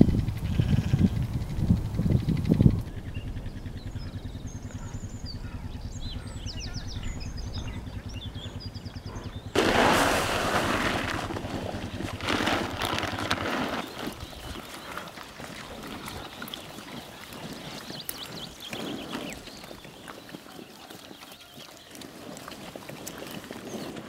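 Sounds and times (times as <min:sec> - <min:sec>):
quad bike engine idling: 0:00.0 - 0:10.0, 0:11.0 - 0:13.8
bird calls: 0:02.1 - 0:24.0
loud rough rustling: 0:09.5 - 0:20.3.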